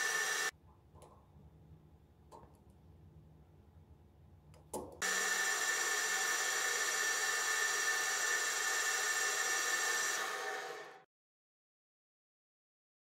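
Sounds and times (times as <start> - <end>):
metal lathe whining: 0.0 - 0.5, 5.0 - 11.0.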